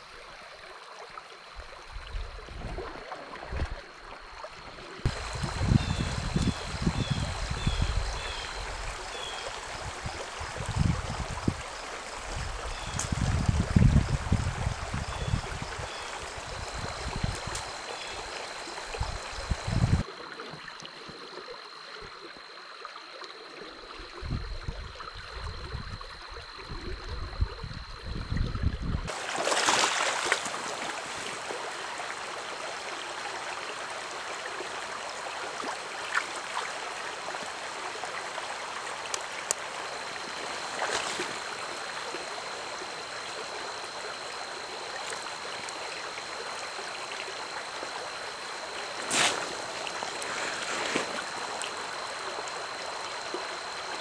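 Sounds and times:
low rumbling wind gusts: 0:05.1 - 0:09.0, 0:09.8 - 0:17.6, 0:18.9 - 0:20.0, 0:24.2 - 0:29.1
stream rushing over rocks: 0:29.1 - 0:43.4, 0:47.1 - 0:54.0.

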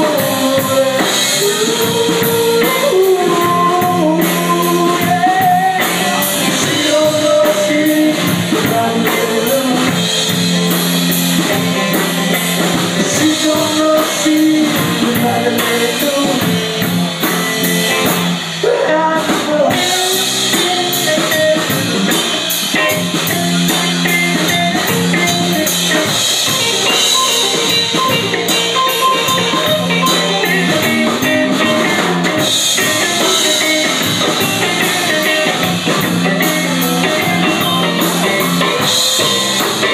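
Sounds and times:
drum kit steady beat: 0:00.0 - 0:39.9
rock band playing: 0:00.0 - 0:39.9.

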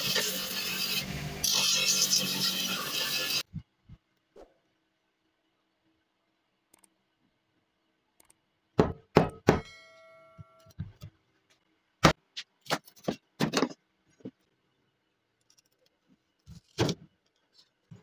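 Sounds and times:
metallic ringing of blade: 0:09.6 - 0:10.6.

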